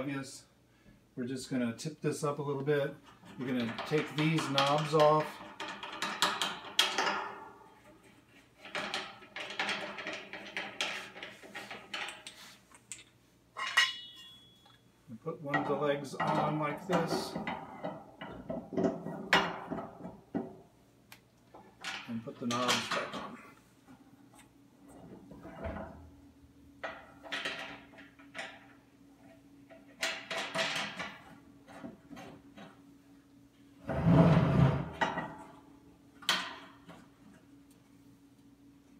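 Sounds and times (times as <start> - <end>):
metal parts scraping and rattling: 3.0 - 14.8.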